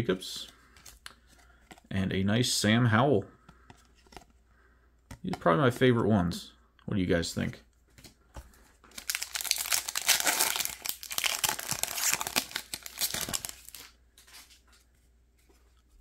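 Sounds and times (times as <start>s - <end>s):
foil wrapper crinkling: 8.9s - 14.0s.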